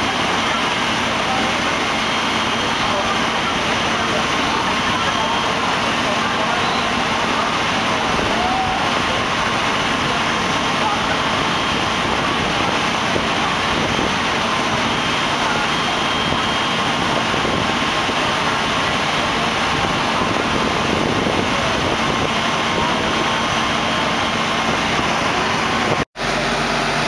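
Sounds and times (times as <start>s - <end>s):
engine drone: 0.0s - 27.0s.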